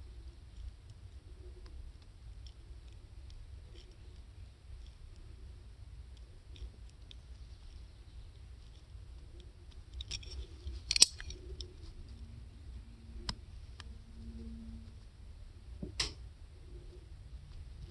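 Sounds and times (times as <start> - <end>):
handling rustle: 6.5 - 12.1.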